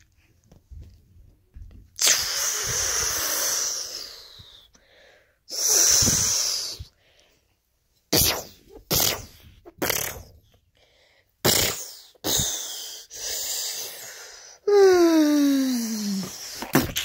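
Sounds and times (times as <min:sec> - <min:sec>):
child making hissing mouth sounds: 0:02.0 - 0:04.8, 0:05.5 - 0:07.0, 0:08.1 - 0:10.5, 0:11.4 - 0:17.0.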